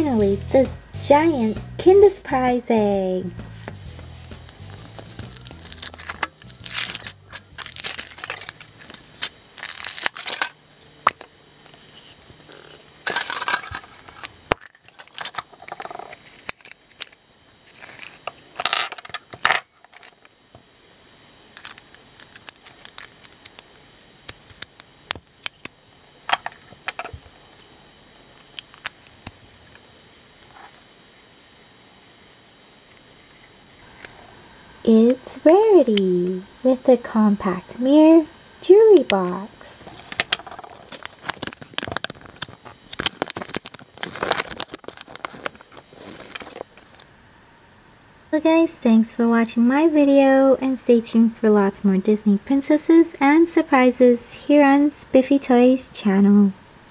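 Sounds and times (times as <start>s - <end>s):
foil wrapper crinkling and tearing: 3.9s - 20.3s, 21.5s - 30.9s, 31.8s - 34.3s, 39.0s - 47.1s.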